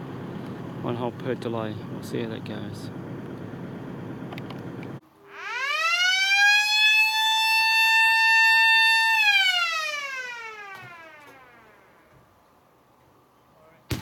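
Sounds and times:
warning siren wailing: 0:05.2 - 0:12.2.

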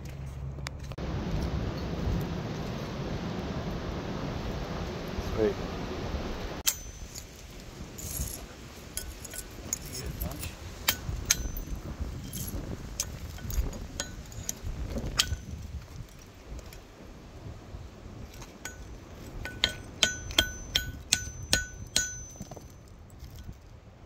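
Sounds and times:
hand tool striking metal on anvil: 0:06.6 - 0:07.4, 0:09.0 - 0:14.6, 0:15.2 - 0:15.6, 0:18.4 - 0:22.9.

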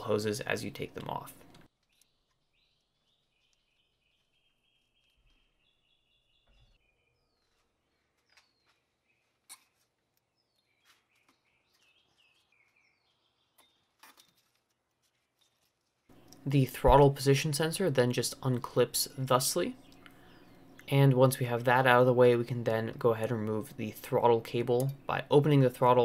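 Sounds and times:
faint bird chirps: 0:01.8 - 0:14.4.

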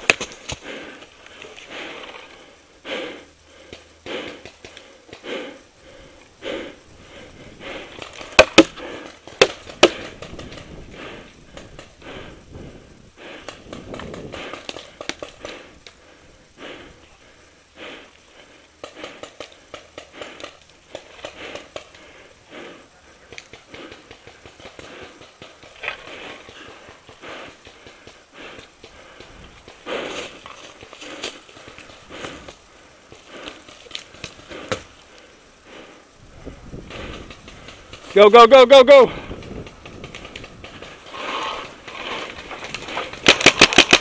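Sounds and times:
person breathing hard: 0:00.0 - 0:38.1, 0:39.1 - 0:39.8, 0:40.5 - 0:44.0
sharp cracks of paintball fire: 0:08.1 - 0:10.8, 0:39.4 - 0:44.0
rustle of gear: 0:39.4 - 0:44.0.

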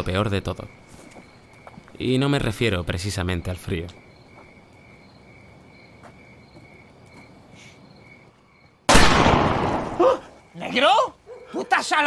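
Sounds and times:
crickets chirping: 0:00.0 - 0:12.0
loud gunshot: 0:08.9 - 0:10.1.

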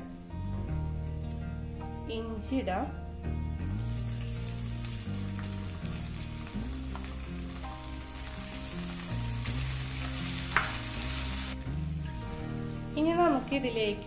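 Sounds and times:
garlic sizzling in oil: 0:03.6 - 0:14.0.

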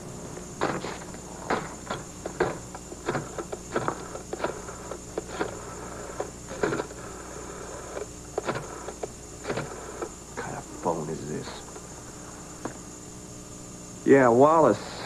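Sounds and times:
telephone dialling clicks: 0:00.6 - 0:10.1.

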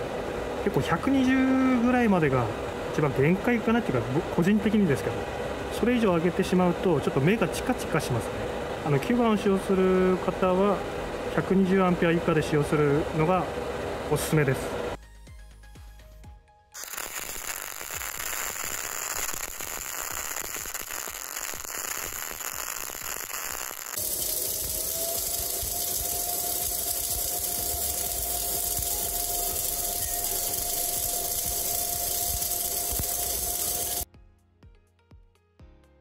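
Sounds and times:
steady whine: 0:00.0 - 0:15.0, 0:16.8 - 0:34.1
arc welding crackling hiss: 0:16.8 - 0:34.1.

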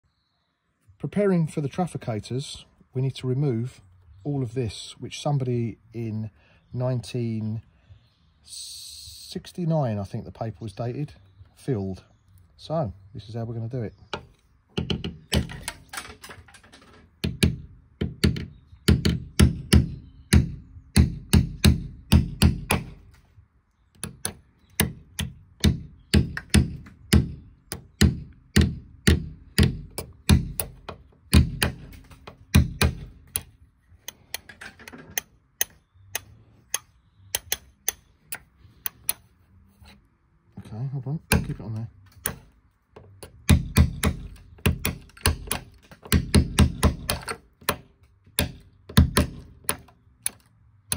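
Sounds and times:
hammer striking metal punch: 0:24.0 - 0:33.5, 0:41.3 - 0:41.6, 0:42.2 - 0:42.5, 0:43.2 - 0:49.9.

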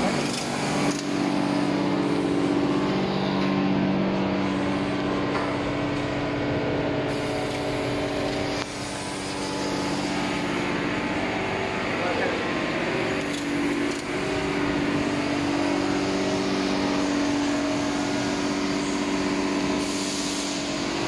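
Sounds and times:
laser cutting machine hum: 0:00.0 - 0:21.0
machine hiss: 0:07.1 - 0:10.8, 0:13.5 - 0:21.0.

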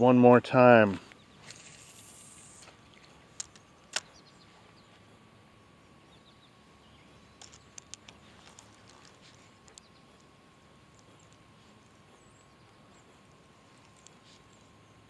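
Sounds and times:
sharp clicks: 0:03.4 - 0:04.2, 0:07.4 - 0:10.3.

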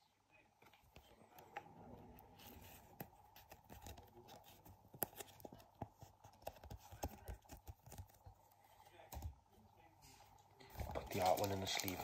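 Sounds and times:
plastic sleeve rustling: 0:10.6 - 0:12.0.

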